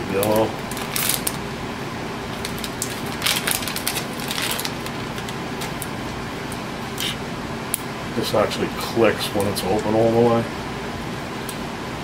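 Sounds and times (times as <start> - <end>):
plastic wrapper crinkling: 0.2 - 1.4, 2.4 - 5.9.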